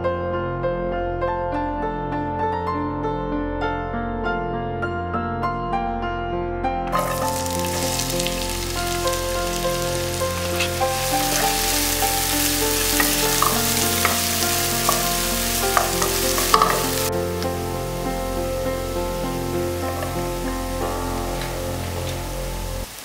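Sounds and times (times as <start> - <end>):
soft piano music: 0.0 - 22.9
onions sizzling in oil: 6.9 - 23.0
spatula scraping a pan: 7.0 - 17.1.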